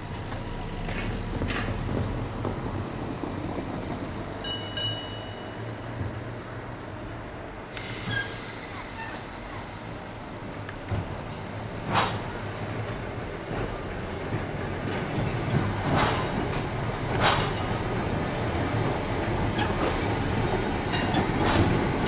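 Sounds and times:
tram rumbling on rails: 0:00.0 - 0:22.0
high tram bell ringing: 0:04.4 - 0:06.0
high hissing squeal: 0:07.8 - 0:10.2.

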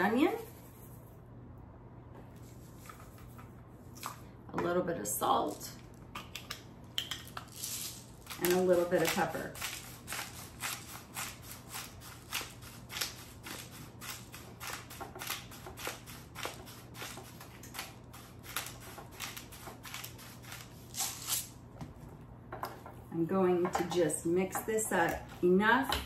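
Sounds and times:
pepper grinder grinding: 0:05.2 - 0:21.5.

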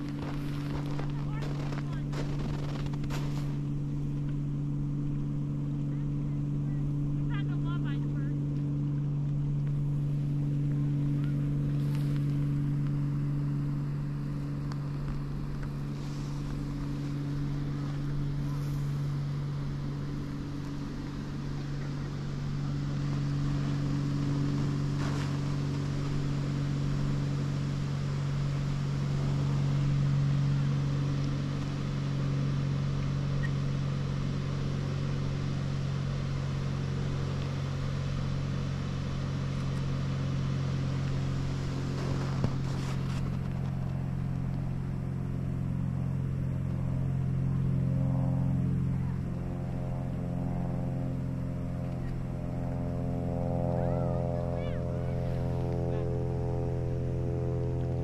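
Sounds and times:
engine hum: 0:00.0 - 0:58.0.

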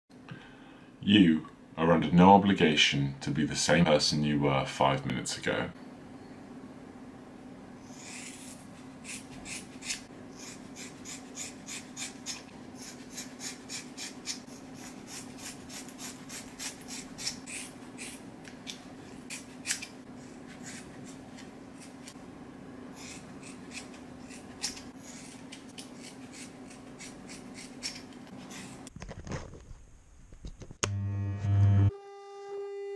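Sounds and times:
scissors snipping hair: 0:07.9 - 0:22.2, 0:23.0 - 0:28.8.

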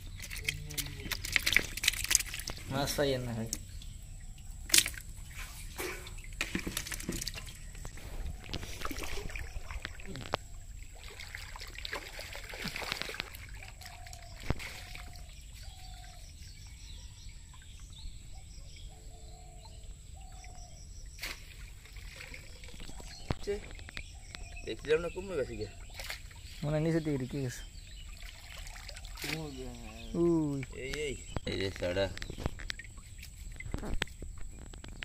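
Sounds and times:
water splashing and trickling: 0:00.0 - 0:35.0.

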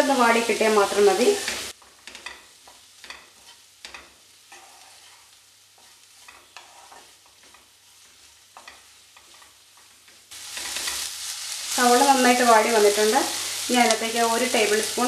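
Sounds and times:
onions sizzling in a pan: 0:00.0 - 0:15.0
spatula scraping a pan: 0:01.4 - 0:11.6.

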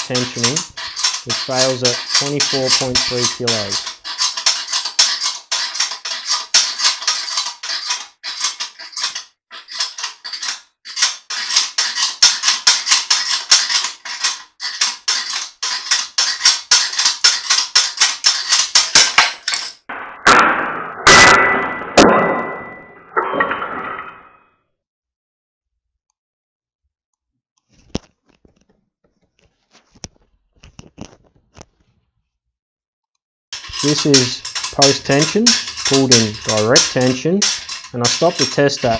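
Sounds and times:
rapid metallic clicking: 0:00.0 - 0:19.8, 0:33.6 - 0:38.9.

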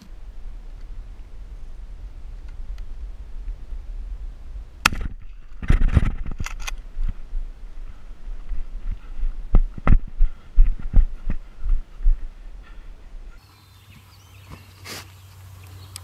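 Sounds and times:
rustling in grass: 0:13.4 - 0:16.0.

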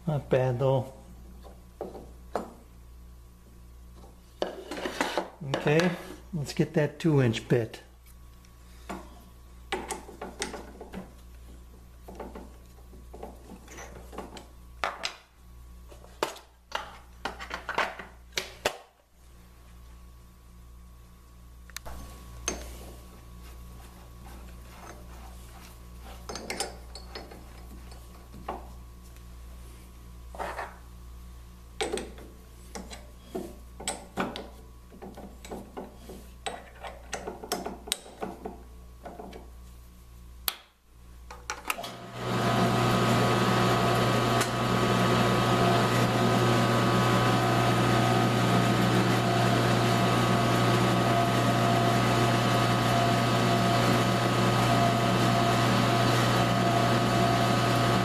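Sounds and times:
drill press motor humming: 0:41.8 - 0:58.0.

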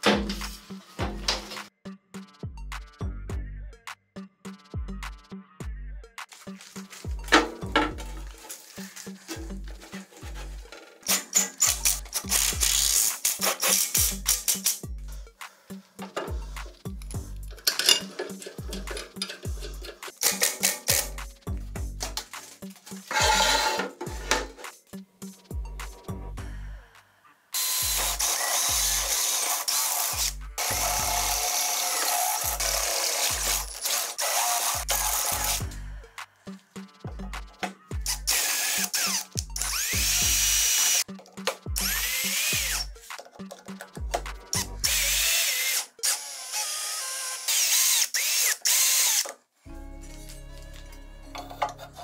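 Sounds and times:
background music: 0:00.0 - 0:52.0
drill boring through steel: 0:23.1 - 0:23.8, 0:27.6 - 0:35.6, 0:38.1 - 0:41.0, 0:41.8 - 0:42.8, 0:44.8 - 0:49.3
electric screwdriver motor whine: 0:27.6 - 0:35.6, 0:38.3 - 0:41.0, 0:44.8 - 0:49.3.

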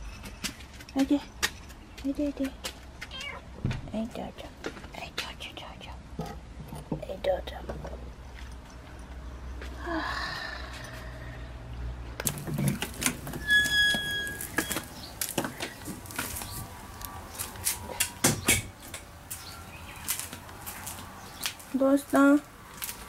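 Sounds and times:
short high squeak: 0:13.2 - 0:14.9.

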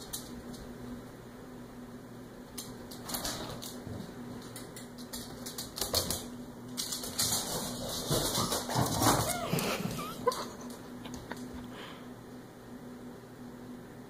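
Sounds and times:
claws clicking on wooden floor: 0:04.4 - 0:09.4.

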